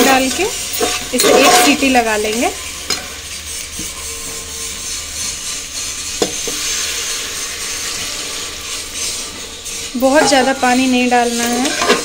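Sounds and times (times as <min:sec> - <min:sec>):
potatoes sizzling in a pot: 0:00.0 - 0:12.0
water poured into hot pan: 0:05.6 - 0:10.0.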